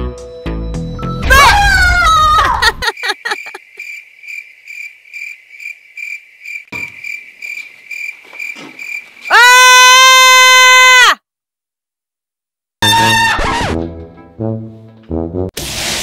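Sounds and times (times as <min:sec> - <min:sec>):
cricket chirping: 0:02.8 - 0:09.3.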